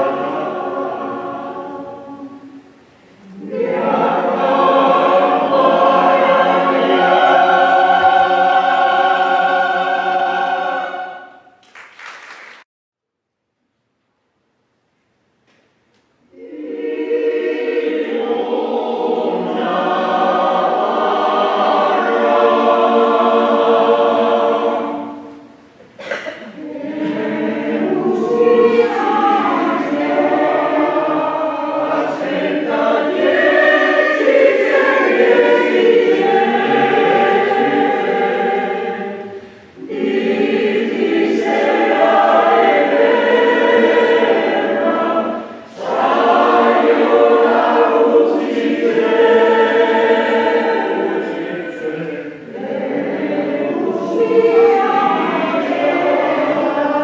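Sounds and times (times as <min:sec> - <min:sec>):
mixed choir singing: 0:00.0 - 0:11.6, 0:16.3 - 0:57.0.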